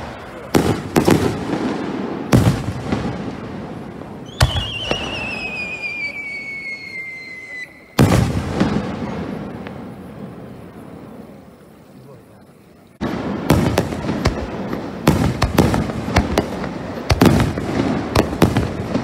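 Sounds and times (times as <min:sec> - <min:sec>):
firework bangs: 0:00.0 - 0:12.2, 0:12.9 - 0:19.0
whistling firework shell: 0:04.2 - 0:09.6.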